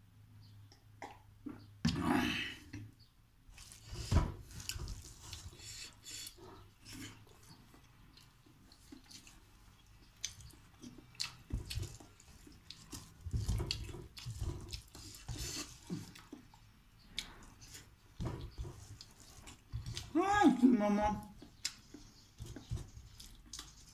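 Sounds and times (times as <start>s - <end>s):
wet chewing and mouth smacks: 4.6s - 18.0s, 21.3s - 23.9s.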